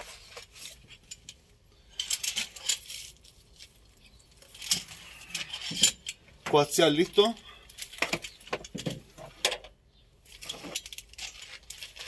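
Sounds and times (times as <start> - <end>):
small metal gear clinking: 0.6 - 6.2, 10.2 - 12.0.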